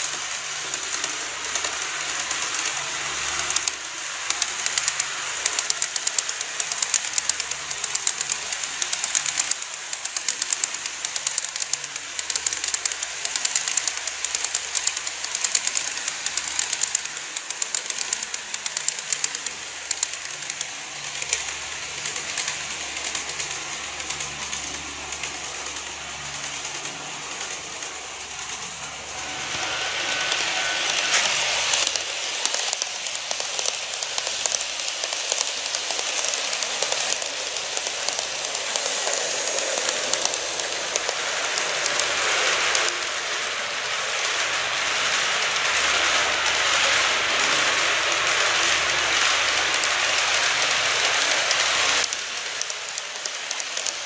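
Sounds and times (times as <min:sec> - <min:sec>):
model train wheels on rails: 0:00.0 - 0:54.0
clicks over rail joints: 0:30.3 - 0:41.2.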